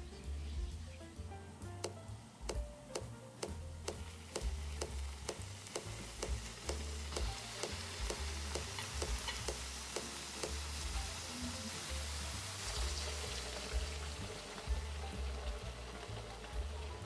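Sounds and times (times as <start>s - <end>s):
background music with beat: 0.0s - 17.0s
butter sizzling in skillet: 4.0s - 17.0s.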